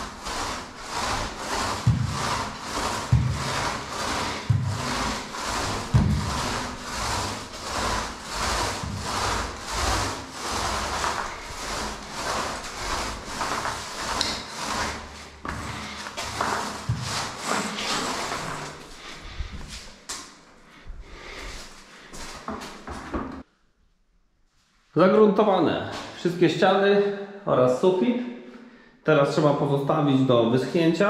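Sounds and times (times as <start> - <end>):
paint roller swishing on wall: 0.0 - 23.5.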